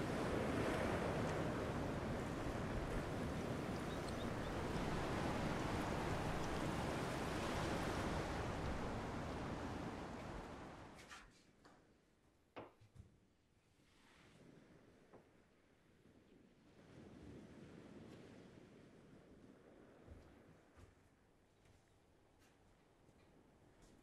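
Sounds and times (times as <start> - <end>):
ocean surf washing onto beach: 0.0 - 11.0
wind: 0.0 - 24.0.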